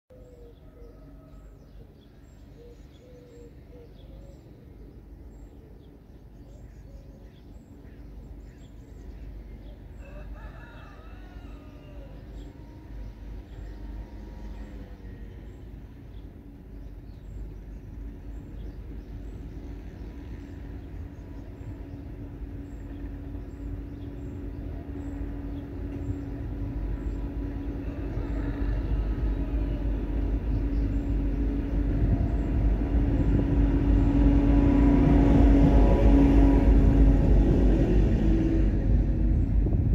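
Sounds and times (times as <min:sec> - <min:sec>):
locomotive engine rumble: 0:00.1 - 0:39.9
rooster crowing: 0:00.4 - 0:01.9, 0:10.0 - 0:15.4, 0:27.4 - 0:30.8
steady hum: 0:11.4 - 0:39.9.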